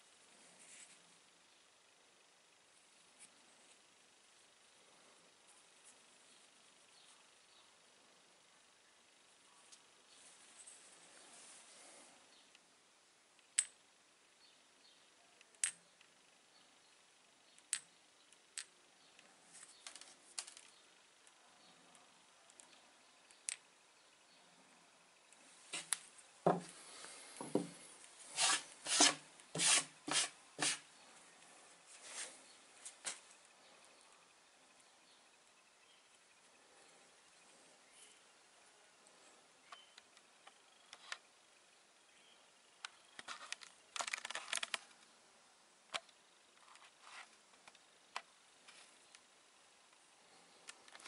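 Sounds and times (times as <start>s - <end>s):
light clicks from handling stones: 15.4s - 16.2s, 17.5s - 23.7s
stones knocking on wooden table: 26.4s - 26.7s, 27.4s - 27.8s
magnet scraping on wood: 28.3s - 30.8s.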